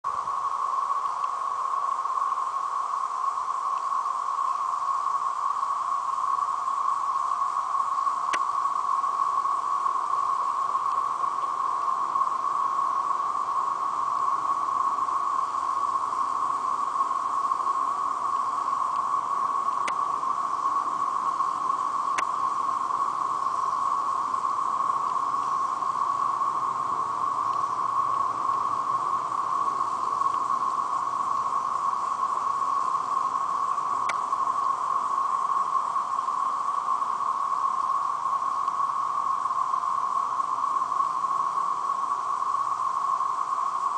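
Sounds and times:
cicadas whining: 0:00.0 - 0:43.9
faint clicks: 0:01.0 - 0:01.4, 0:08.3 - 0:08.5, 0:18.9 - 0:20.1, 0:22.1 - 0:22.4, 0:27.5 - 0:27.7, 0:30.2 - 0:30.5, 0:33.7 - 0:34.4.

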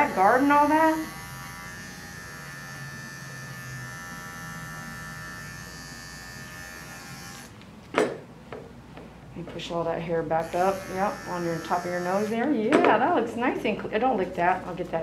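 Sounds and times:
pet clipper buzzing: 0:00.0 - 0:07.6, 0:10.4 - 0:12.6.

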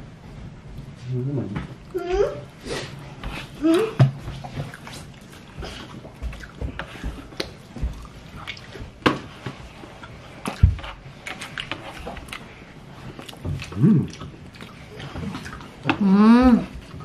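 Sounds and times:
chewing: 0:03.3 - 0:09.0, 0:09.8 - 0:17.0.

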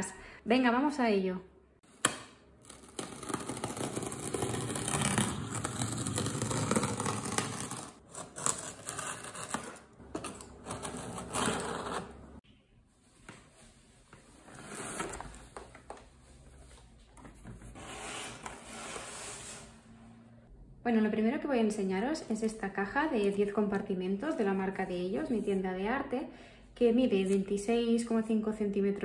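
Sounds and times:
knife slitting packing tape: 0:02.6 - 0:12.1.

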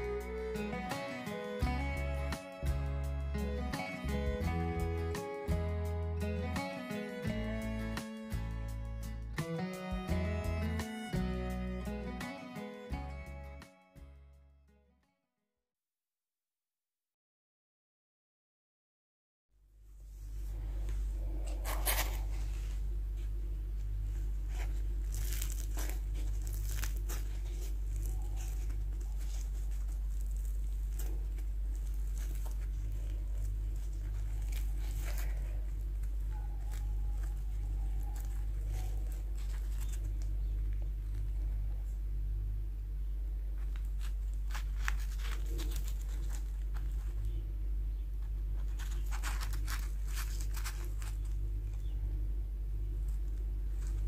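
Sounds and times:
steady low hum: 0:00.0 - 0:14.4, 0:19.7 - 0:54.0
crisp pastry crackling: 0:21.1 - 0:41.7, 0:43.4 - 0:54.0.

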